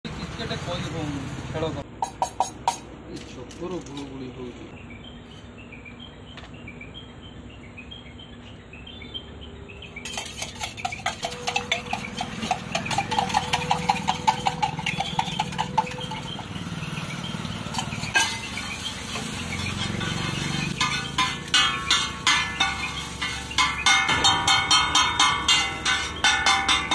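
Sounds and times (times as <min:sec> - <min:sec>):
spatula clack: 0:10.0 - 0:16.6, 0:17.7 - 0:26.9
spoon beating eggs in metal cup: 0:10.0 - 0:16.6
spatula scraping griddle: 0:10.0 - 0:26.9.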